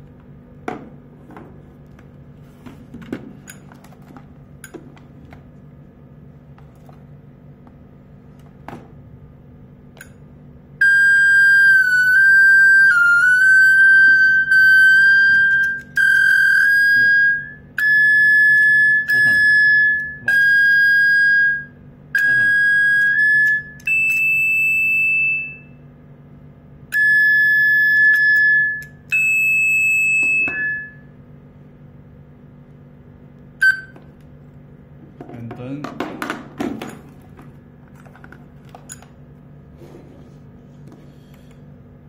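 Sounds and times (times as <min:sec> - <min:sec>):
low electrical hum: 0:00.0 - 0:42.0
intercom ringtone beeping melody: 0:10.8 - 0:25.7, 0:27.0 - 0:31.1.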